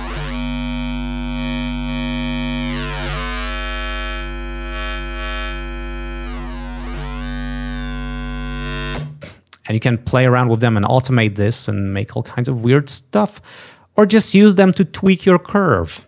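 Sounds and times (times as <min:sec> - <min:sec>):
buzzy distorted synth tone: 0:00.0 - 0:09.2.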